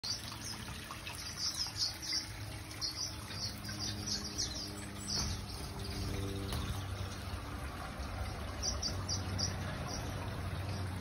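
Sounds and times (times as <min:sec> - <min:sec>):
finches chirping: 0:01.2 - 0:07.1, 0:08.3 - 0:10.8.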